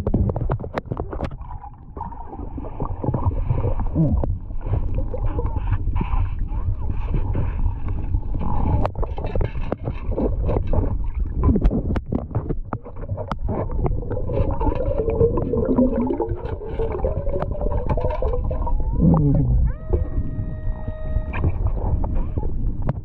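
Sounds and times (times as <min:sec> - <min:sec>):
rumbling water: 0:00.0 - 0:23.0
warbling tone: 0:14.0 - 0:22.6.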